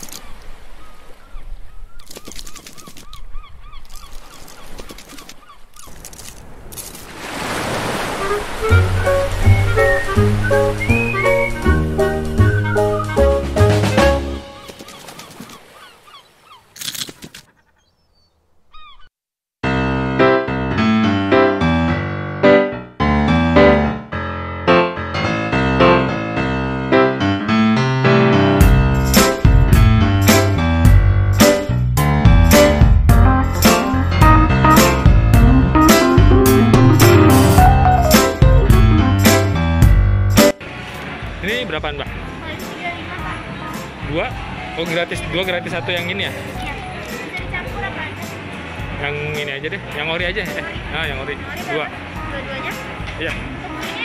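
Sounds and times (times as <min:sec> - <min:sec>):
short squeaky calls: 0:00.1 - 0:06.2, 0:14.4 - 0:19.1
wave surging: 0:07.0 - 0:14.1
keyboard tune: 0:08.1 - 0:14.6, 0:19.6 - 0:40.6
music: 0:08.2 - 0:14.6, 0:19.6 - 0:40.6, 0:41.4 - 0:54.0.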